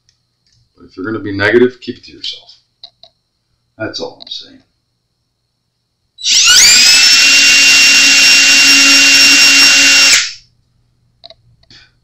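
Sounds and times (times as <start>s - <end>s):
cordless drill drilling into wood: 6.2s - 10.4s.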